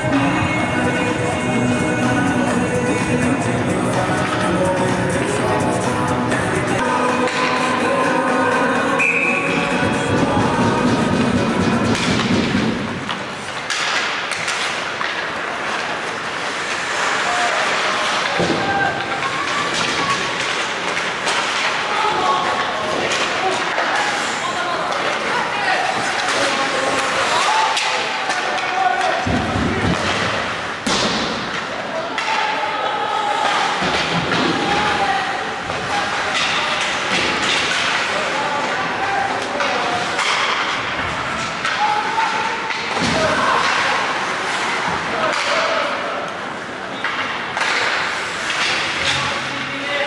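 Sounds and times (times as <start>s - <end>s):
hockey sticks and puck clacking: 3.8s - 5.4s, 6.7s - 7.8s, 9.0s - 50.0s
skates scraping on ice: 10.1s - 22.0s.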